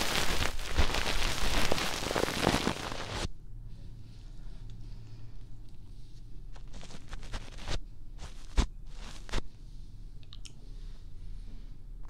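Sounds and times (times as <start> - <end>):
fingers rubbing microphone pads: 0.0 - 3.3, 6.5 - 9.4
steady low hum: 0.0 - 12.0.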